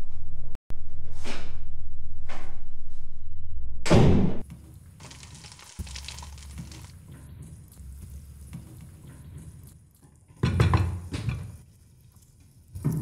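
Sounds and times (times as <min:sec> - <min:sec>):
food simmering in frying pan: 0:04.5 - 0:13.0.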